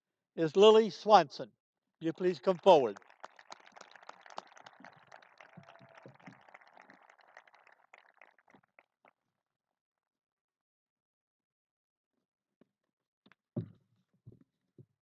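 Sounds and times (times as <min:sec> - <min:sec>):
faint applause: 0:02.0 - 0:08.8.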